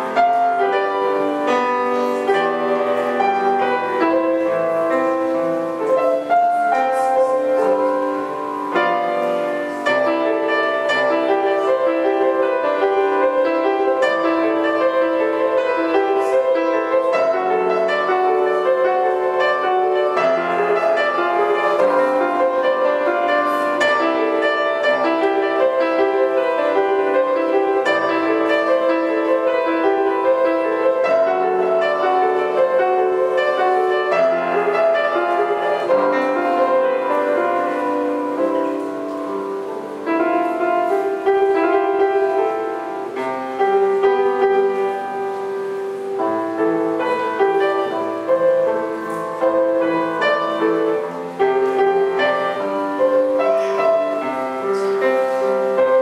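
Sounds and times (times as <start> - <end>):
grand piano melody: 0.0 - 56.0.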